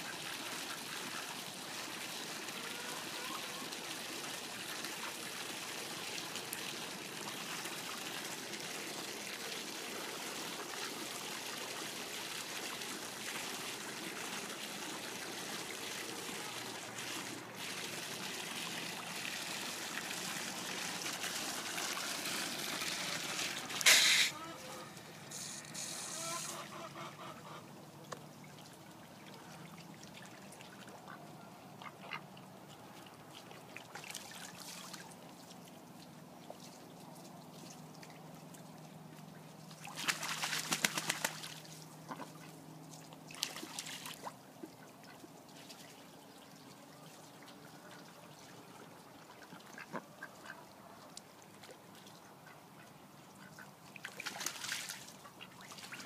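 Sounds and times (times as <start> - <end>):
ducks splashing in water: 0.0 - 27.7, 31.8 - 38.6, 39.6 - 56.0
water trickling: 0.1 - 31.1
ducks quacking: 23.9 - 27.7.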